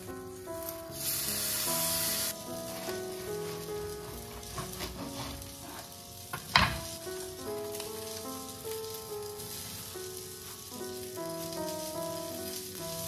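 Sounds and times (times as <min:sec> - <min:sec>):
food sizzling on grill pan: 0:00.0 - 0:13.0
soft background music: 0:00.0 - 0:13.0.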